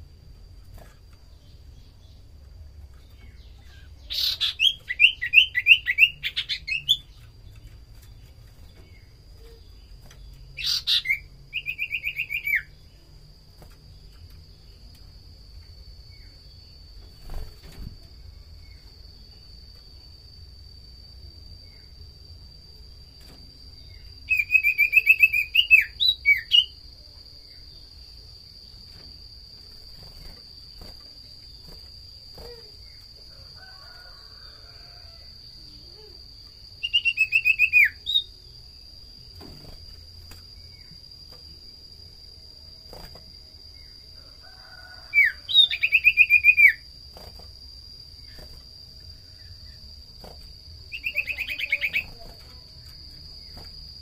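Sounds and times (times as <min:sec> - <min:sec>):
faint high whine: 0:00.0 - 0:54.0
bird chirping: 0:01.3 - 0:13.0, 0:23.8 - 0:26.8, 0:36.7 - 0:38.5, 0:45.2 - 0:46.8, 0:50.9 - 0:52.3.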